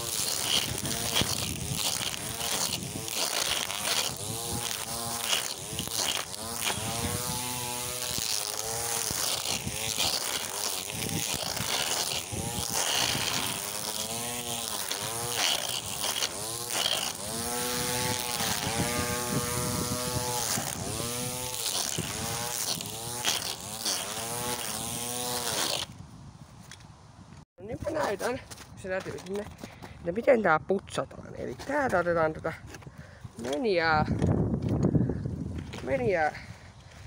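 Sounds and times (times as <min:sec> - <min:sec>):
string trimmer motor whining: 0:00.0 - 0:26.0.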